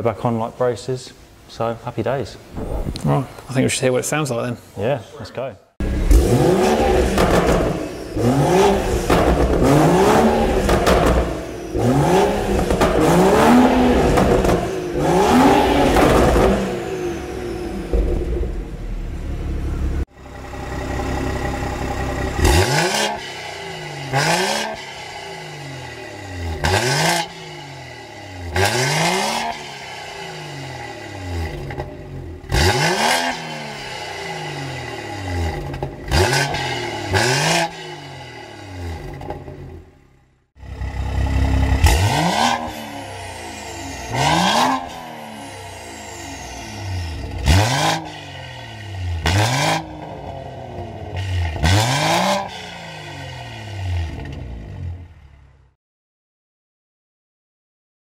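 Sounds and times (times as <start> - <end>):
car engine revving: 5.8 - 39.9, 40.6 - 55.1.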